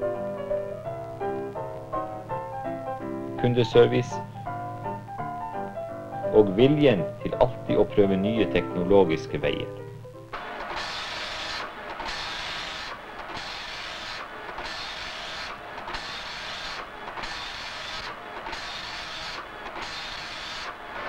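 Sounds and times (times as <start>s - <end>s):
printer printing: 10.4s - 21.0s.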